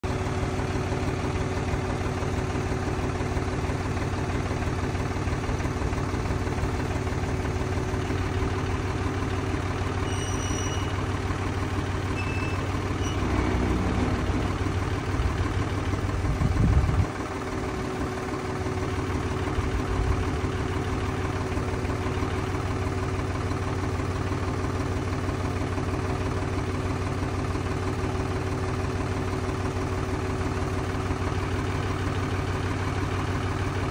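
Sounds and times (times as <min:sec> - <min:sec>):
tractor diesel engine idling: 0:00.0 - 0:33.9
loader hydraulics working: 0:11.9 - 0:15.9.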